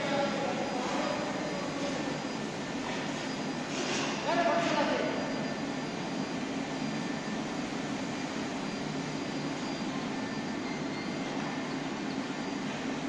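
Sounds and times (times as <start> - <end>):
melting furnace industrial drone: 0.0 - 13.0.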